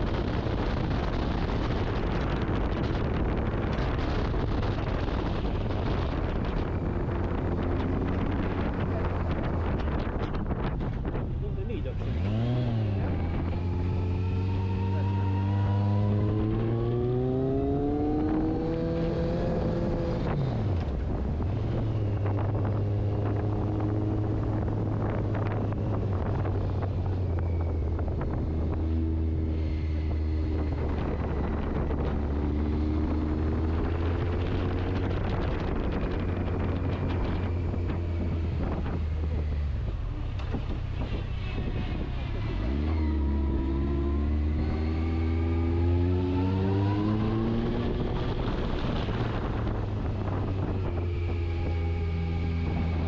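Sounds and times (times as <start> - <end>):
wind noise on microphone: 0.0 - 53.0
motorcycle engine revving: 11.8 - 53.0.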